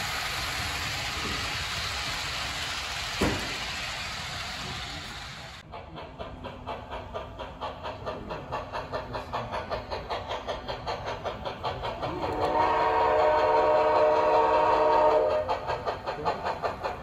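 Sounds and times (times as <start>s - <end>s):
model steam locomotive chuffing: 0.0s - 17.0s
steam whistle blast: 12.3s - 15.5s.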